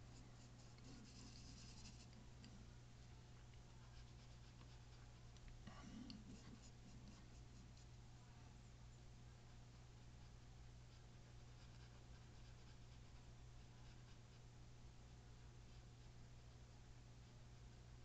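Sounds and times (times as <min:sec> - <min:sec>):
steady low hum: 0:00.0 - 0:18.0
paintbrush scratching on canvas: 0:00.1 - 0:02.2.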